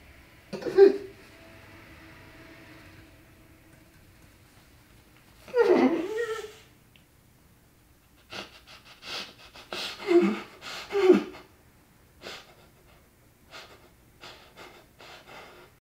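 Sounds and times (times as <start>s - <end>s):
person sobbing: 0.6s - 1.1s, 5.5s - 6.6s, 8.1s - 11.5s, 12.2s - 15.7s.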